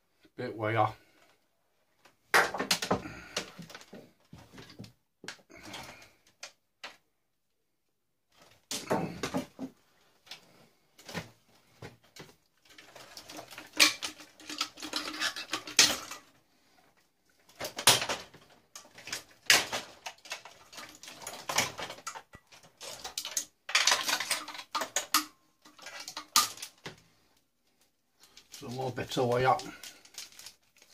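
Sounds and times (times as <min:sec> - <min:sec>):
plastic and metal parts clattering: 0:02.4 - 0:07.0, 0:08.3 - 0:30.9
wire scraping and rustling: 0:10.2 - 0:30.9.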